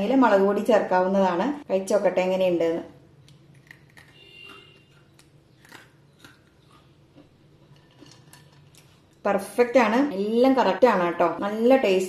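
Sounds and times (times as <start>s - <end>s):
crunching of crisp fried snack: 3.3s - 9.2s.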